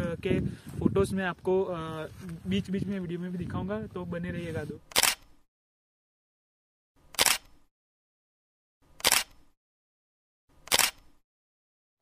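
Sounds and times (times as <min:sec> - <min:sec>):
camera shutter click: 0:04.9 - 0:05.4, 0:07.1 - 0:07.7, 0:09.0 - 0:09.5, 0:10.6 - 0:11.2.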